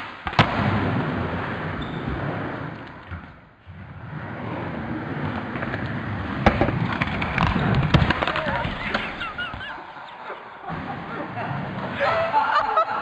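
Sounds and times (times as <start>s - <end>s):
skateboard wheels rolling: 0.0s - 13.0s
skateboard popping and landing: 5.2s - 9.3s.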